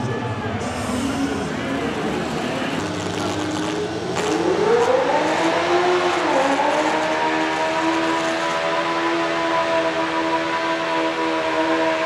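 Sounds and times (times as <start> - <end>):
tractor engine revving: 0.6 - 9.8.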